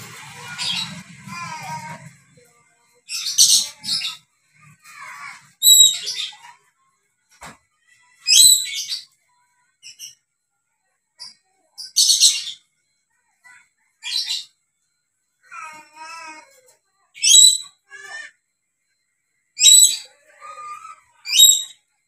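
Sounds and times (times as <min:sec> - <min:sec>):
parrot screeching: 0:04.8 - 0:06.4.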